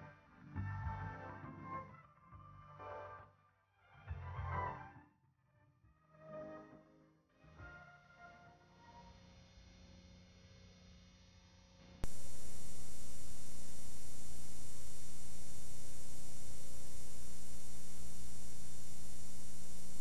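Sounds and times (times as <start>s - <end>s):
loud electrical hum and buzz: 9.2s - 20.0s.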